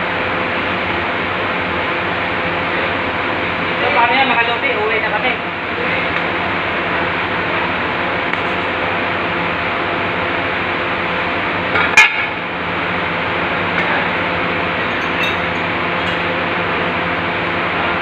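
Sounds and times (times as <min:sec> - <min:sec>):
steady machine hum: 0:00.0 - 0:18.0
sharp metallic clink: 0:14.8 - 0:16.4.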